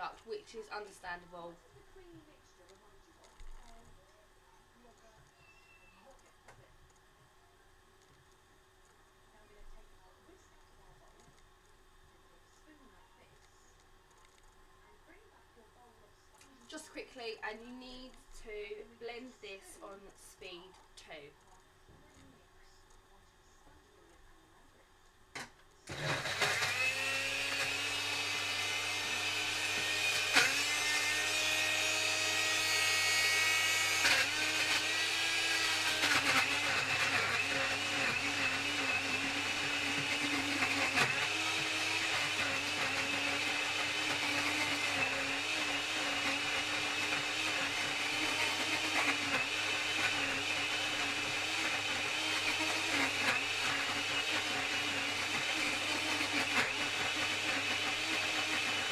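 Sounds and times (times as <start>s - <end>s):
blender motor whirring: 25.4s - 58.9s.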